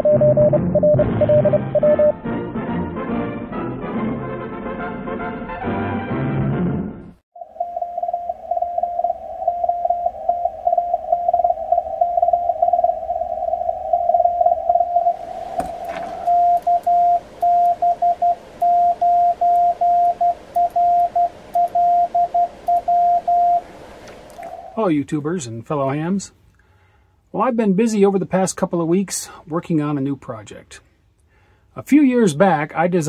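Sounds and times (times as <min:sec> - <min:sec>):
morse code signal on radio: 0:00.0 - 0:02.1, 0:07.4 - 0:24.8
radio band hiss: 0:14.6 - 0:17.4, 0:23.4 - 0:25.4
morse sidetone dits and dahs: 0:16.1 - 0:23.7.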